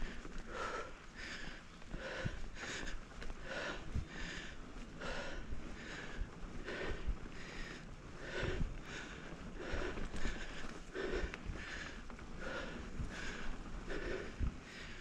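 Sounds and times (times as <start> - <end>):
person breathing hard: 0.0 - 15.0.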